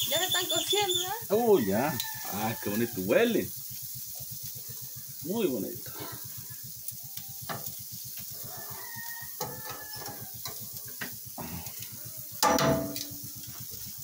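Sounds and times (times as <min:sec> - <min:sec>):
chickens calling: 0:00.0 - 0:03.2, 0:08.2 - 0:10.8
meat sizzling on a grill: 0:00.0 - 0:14.0.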